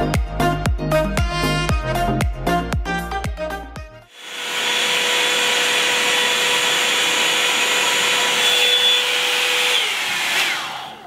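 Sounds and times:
hot-air brush running: 0:04.1 - 0:11.0.

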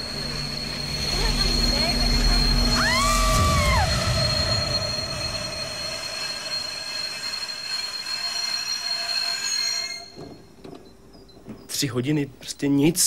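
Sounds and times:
brief shrill tone: 0:00.0 - 0:10.6
high-pitched wheel squeal: 0:00.0 - 0:10.6.

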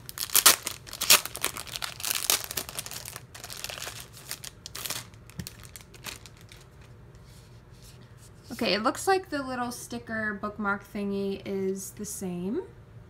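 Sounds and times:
plastic sleeve crinkling: 0:00.0 - 0:07.5.

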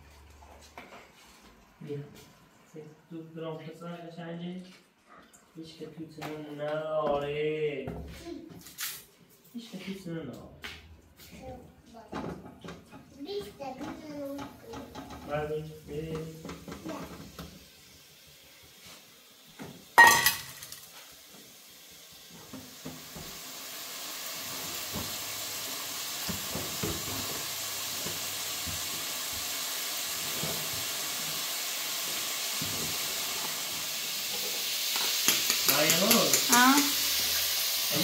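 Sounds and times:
food sizzling in a pan: 0:11.2 - 0:38.0
loud metal clank: 0:20.0 - 0:20.8.

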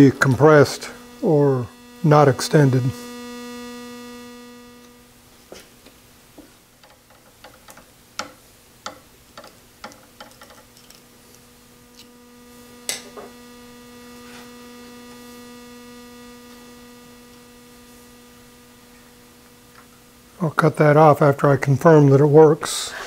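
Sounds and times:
steady electrical hum: 0:00.0 - 0:23.0
small clicks and taps: 0:06.8 - 0:11.0.

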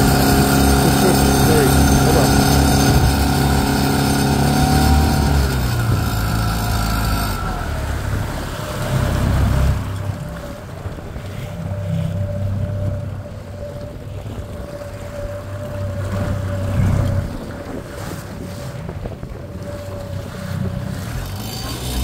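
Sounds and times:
high buzzing: 0:00.0 - 0:07.4
outboard motor running: 0:00.0 - 0:22.0
wash of boat wake: 0:00.0 - 0:22.0.

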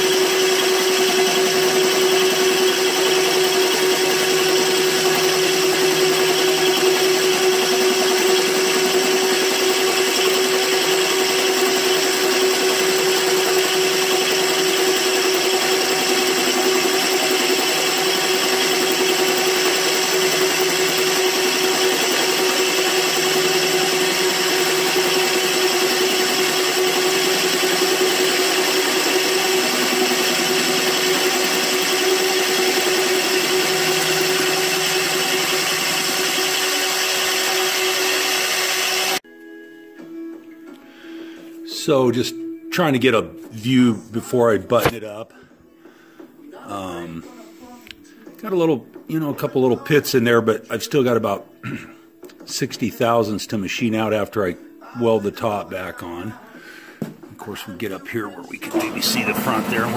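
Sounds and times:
electric motor whining: 0:00.0 - 0:39.2, 0:58.6 - 0:59.9.

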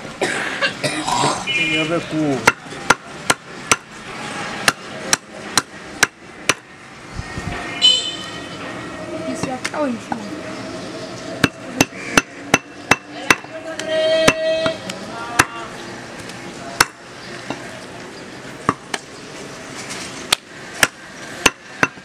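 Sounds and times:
cleaver chopping meat and bone: 0:02.4 - 0:03.9, 0:04.6 - 0:06.7, 0:11.4 - 0:13.5, 0:16.8 - 0:17.0, 0:20.3 - 0:22.0.

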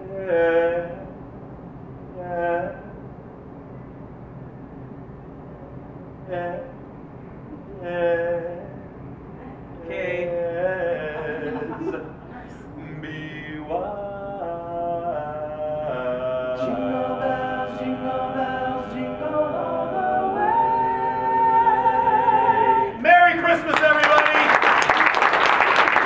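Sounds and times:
male group singing in harmony: 0:09.8 - 0:23.0
audience applause: 0:23.6 - 0:26.0.

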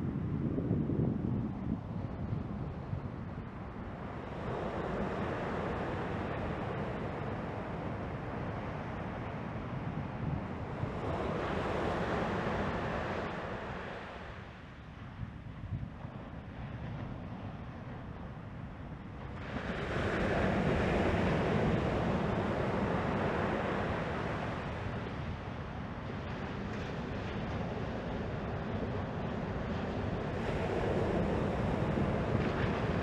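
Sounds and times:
wind buffeting microphone: 0:00.0 - 0:33.0
ocean surf breaking: 0:19.4 - 0:33.0.

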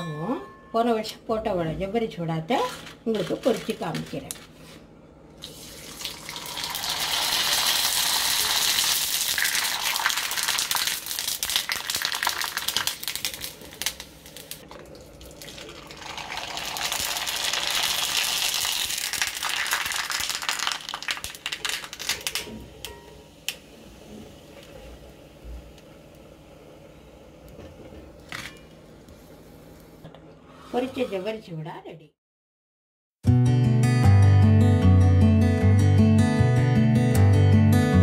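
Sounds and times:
food sizzling and popping in oil: 0:05.4 - 0:23.7.

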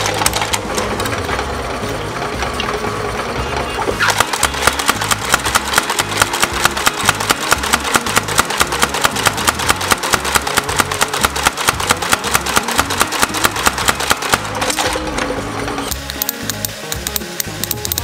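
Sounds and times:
power hammer pounding metal: 0:04.0 - 0:18.0.

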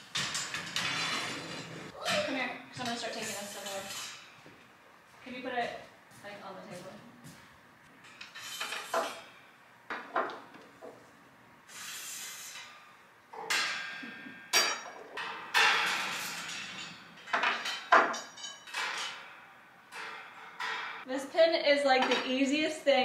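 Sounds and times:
metal scraping and jangling: 0:00.0 - 0:01.9, 0:15.5 - 0:19.4
wire panels clanking and rattling: 0:00.0 - 0:03.0, 0:13.4 - 0:21.0.

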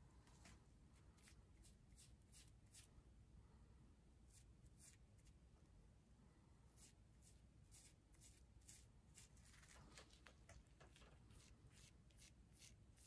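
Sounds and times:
brush scratching through hair: 0:06.8 - 0:10.1, 0:10.9 - 0:13.0.

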